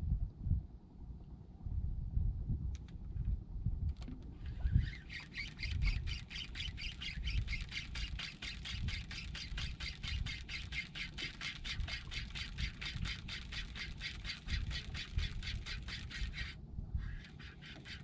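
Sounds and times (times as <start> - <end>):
fishing reel clicking: 4.5 - 18.0.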